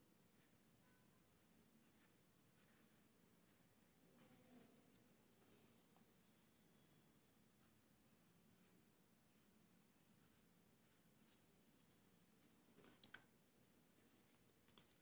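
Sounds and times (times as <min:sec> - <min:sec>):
pencil sketching on paper: 0:00.4 - 0:03.6, 0:07.6 - 0:09.5, 0:10.2 - 0:12.6.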